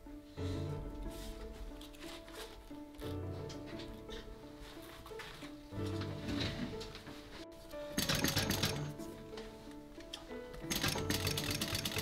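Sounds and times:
background music with held tones: 0:00.0 - 0:12.0.

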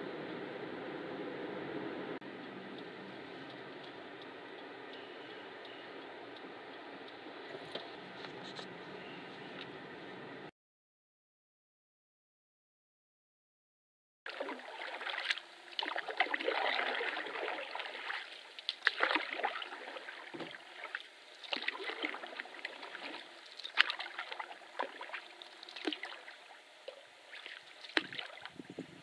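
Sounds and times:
sharp drips and knocks: 0:14.3 - 0:28.6
paddle dipping in water: 0:14.3 - 0:29.0
water trickling and splashing: 0:14.3 - 0:29.0.

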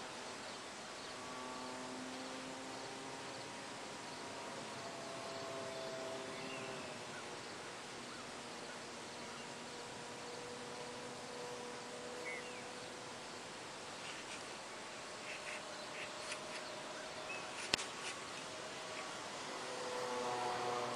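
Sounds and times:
model plane electric motor hum: 0:00.0 - 0:20.9
outdoor hiss: 0:00.0 - 0:20.9.

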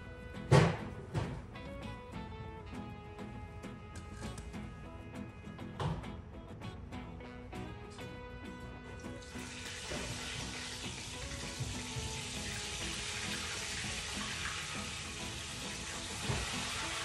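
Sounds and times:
food sizzling in a wok: 0:09.2 - 0:17.0.

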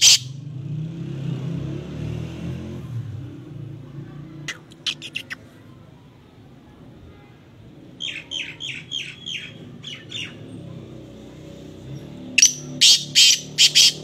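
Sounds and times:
francolin calling: 0:12.4 - 0:14.0.

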